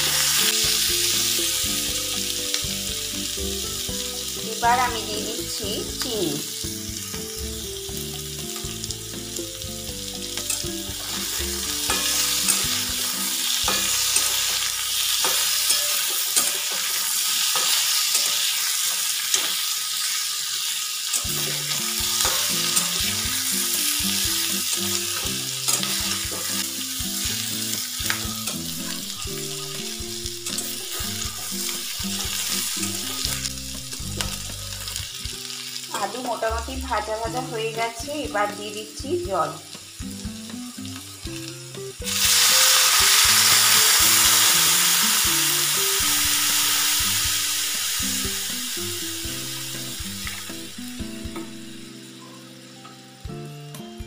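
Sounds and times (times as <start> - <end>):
potatoes sizzling in hot oil: 0.0 - 54.0
metal spatula scraping and clicking: 11.9 - 12.8, 13.7 - 14.6, 15.2 - 19.6, 21.1 - 23.1, 25.6 - 26.6.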